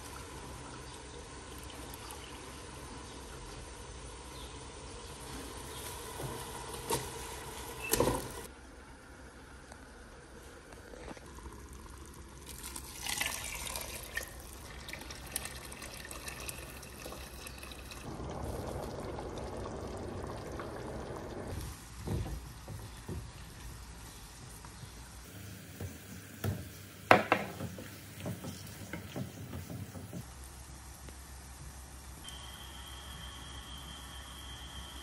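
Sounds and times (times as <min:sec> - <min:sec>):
water pouring into a pot: 0:11.1 - 0:22.0
wooden spoon knocking in a pan: 0:25.8 - 0:30.3.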